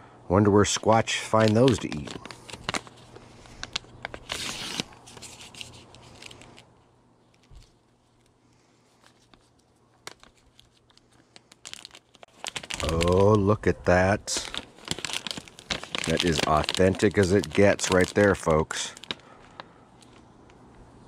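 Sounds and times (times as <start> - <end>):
plastic pouch crinkling: 0.8 - 20.4
small crackles: 1.3 - 13.4, 14.2 - 20.9.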